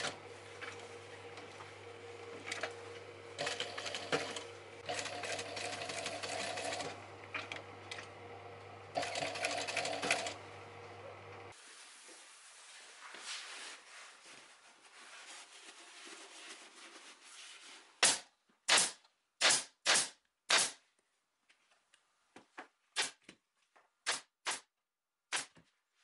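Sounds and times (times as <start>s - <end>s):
pneumatic staple gun firing: 18.0s - 20.8s.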